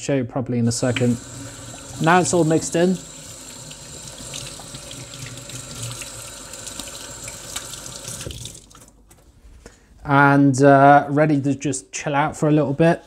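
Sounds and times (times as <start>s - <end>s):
tap running into sink: 0.8s - 2.2s.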